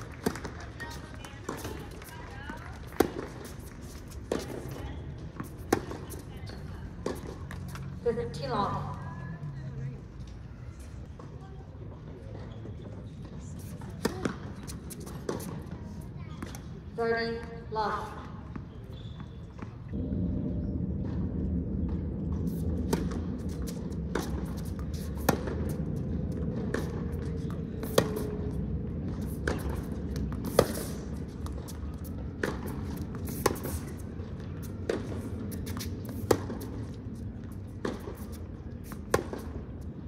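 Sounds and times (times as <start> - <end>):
tennis ball bouncing: 0.2 - 7.8, 22.5 - 39.8
steady low rumble: 19.9 - 40.0
racket striking tennis ball: 26.5 - 28.5, 29.1 - 34.0, 34.6 - 37.0, 37.8 - 39.6.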